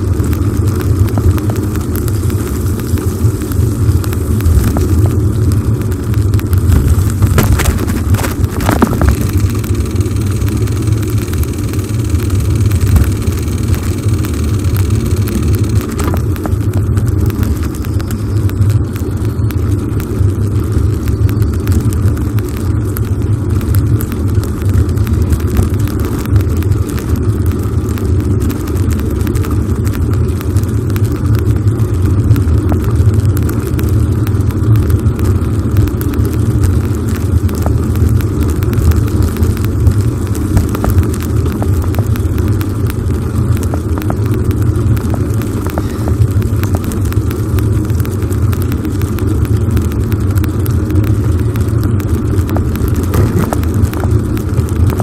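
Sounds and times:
sharp clicks: 0:00.3 - 0:20.2
wind buffeting microphone: 0:01.0 - 0:10.4, 0:52.5 - 0:55.0.

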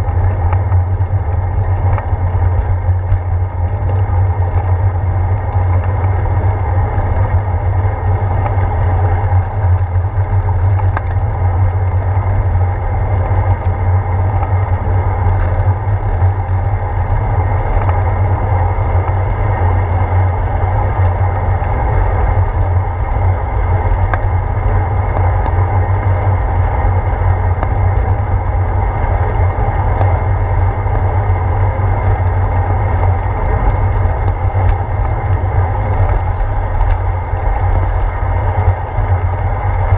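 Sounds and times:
bicycle tyres on wet pavement: 0:00.0 - 0:39.9
faint clicks from bumps: 0:00.0 - 0:39.9
wind rumble: 0:00.0 - 0:39.9.

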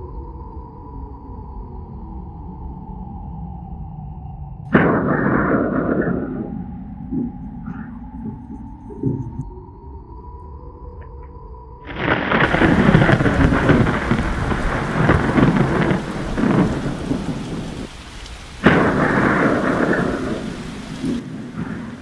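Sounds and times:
sharp thunderclap: 0:04.7 - 0:07.3, 0:12.0 - 0:22.0
rolling thunder: 0:04.7 - 0:09.4, 0:11.9 - 0:22.0
heavy rain: 0:11.9 - 0:22.0.

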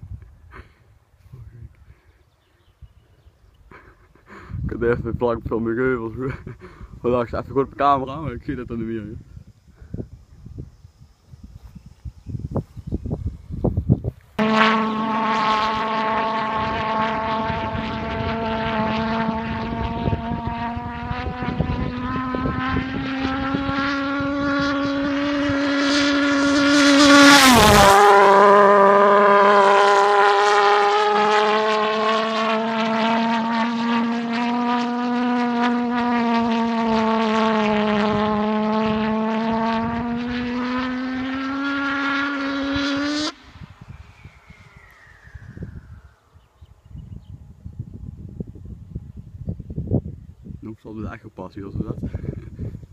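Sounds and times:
pulse jet model plane buzzing: 0:09.2 - 0:49.0.

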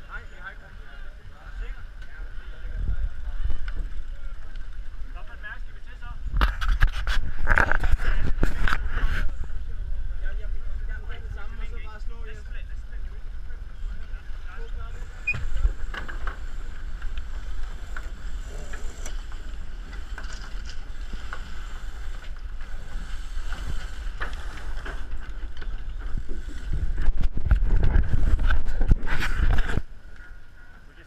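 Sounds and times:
knocks and rattles of sail lines: 0:00.0 - 0:31.0
wind buffeting microphone: 0:06.1 - 0:30.6.

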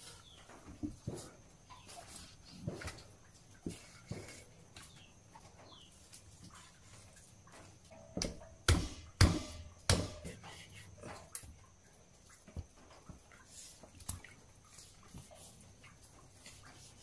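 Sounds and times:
knife chopping onto cutting board: 0:08.7 - 0:10.3.

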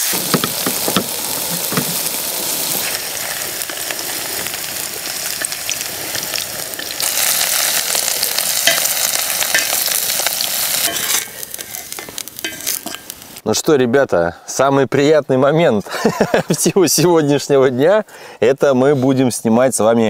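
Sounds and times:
mushrooms and potatoes sizzling in oil: 0:00.0 - 0:13.4
metal spatula scraping a pan: 0:08.4 - 0:13.2.

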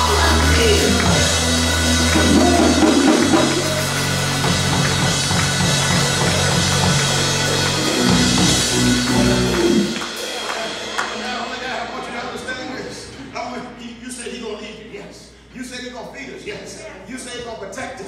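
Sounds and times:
drum kit: 0:00.0 - 0:12.5
held low chords: 0:00.0 - 0:12.5
band playing: 0:00.0 - 0:13.7.

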